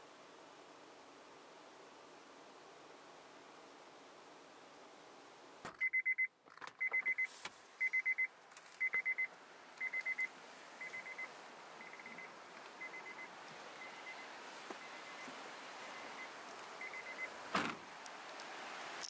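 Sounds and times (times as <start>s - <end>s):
high electronic beeps: 7.8s - 14.2s.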